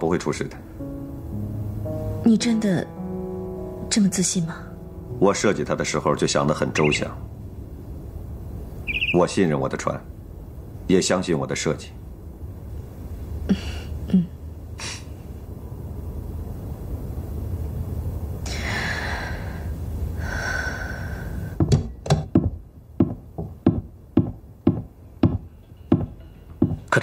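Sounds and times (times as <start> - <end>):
low drone: 0.0 - 21.6
breathy hissing swells: 12.5 - 21.6
footsteps on hard floor: 21.6 - 26.9.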